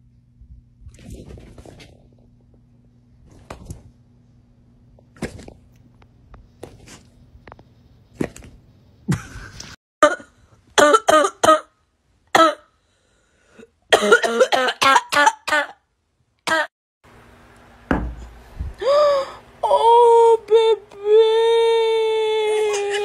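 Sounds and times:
harsh coughing: 13.9s - 15.8s, 16.5s - 16.7s
soft thump: 17.9s - 18.3s.

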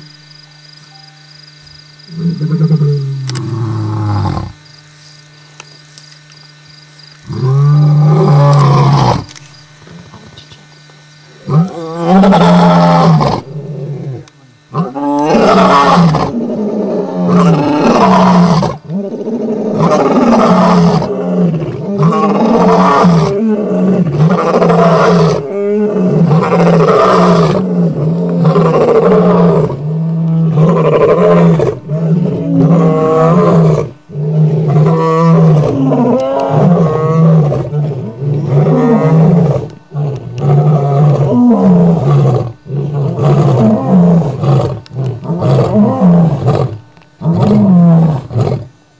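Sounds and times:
lions roaring: 2.1s - 4.6s, 7.3s - 9.3s, 11.4s - 48.7s.

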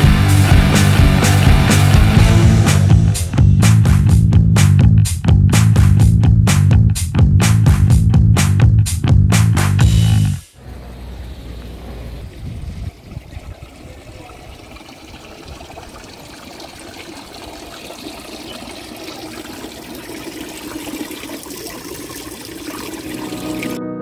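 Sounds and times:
fountain water splashing into basin: 11.1s - 23.8s.

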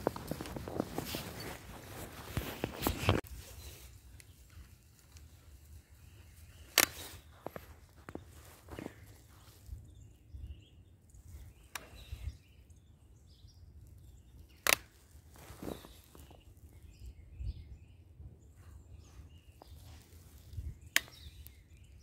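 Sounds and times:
faint bird chirps: 3.4s - 22.0s
sharp clicks: 6.6s - 7.7s, 14.6s - 15.0s.

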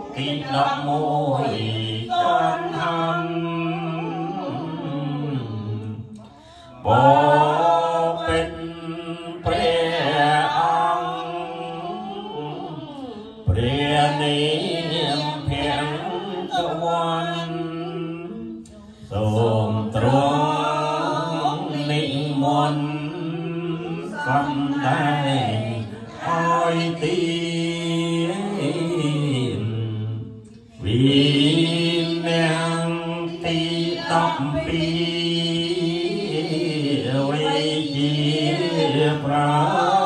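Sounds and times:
women chanting verses: 0.0s - 40.0s
lead voice on a microphone: 30.8s - 40.0s.

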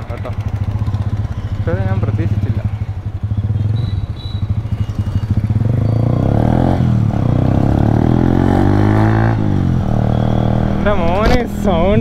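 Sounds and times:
motorcycle engine accelerating: 0.0s - 12.0s.

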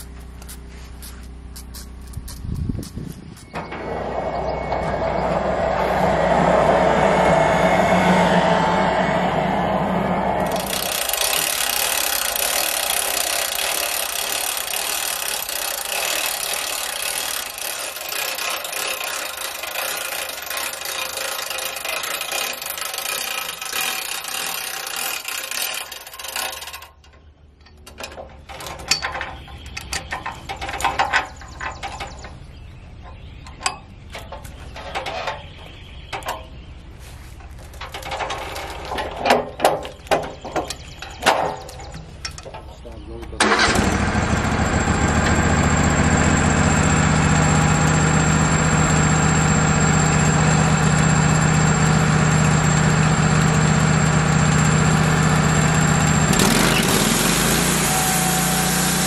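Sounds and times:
low steady hum: 0.0s - 12.2s
loud steady rushing noise: 3.8s - 11.3s
log knocking and clanking on steel: 26.4s - 32.4s, 37.4s - 43.1s.

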